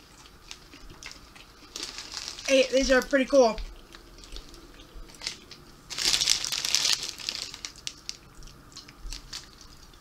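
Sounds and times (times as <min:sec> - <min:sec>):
foil bag crinkling: 0:00.5 - 0:03.6, 0:04.2 - 0:10.0.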